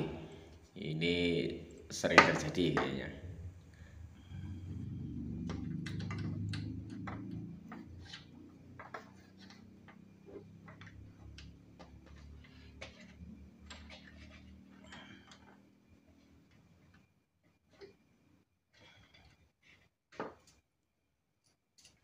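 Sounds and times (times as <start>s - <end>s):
low rumble: 3.1s - 7.8s.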